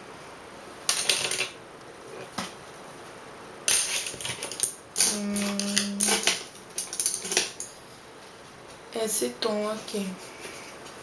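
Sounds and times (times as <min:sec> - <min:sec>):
woman humming: 0:05.0 - 0:06.4.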